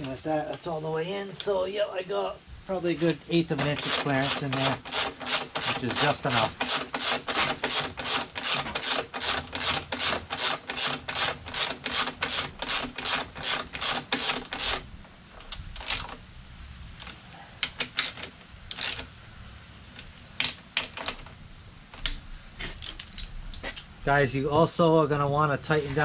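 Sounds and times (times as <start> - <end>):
ratchet wrench clicking: 3.8 - 14.8, 17.0 - 19.1.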